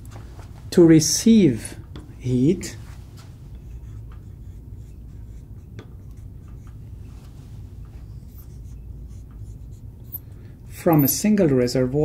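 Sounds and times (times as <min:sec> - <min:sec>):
low steady hum: 0:00.0 - 0:12.0
marker squeaking on glass: 0:08.0 - 0:10.2.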